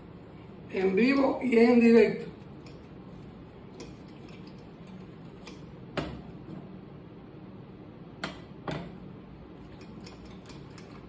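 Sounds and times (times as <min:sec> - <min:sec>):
fork clicking in ceramic bowl: 0:02.6 - 0:02.9, 0:03.8 - 0:05.7, 0:09.7 - 0:11.0.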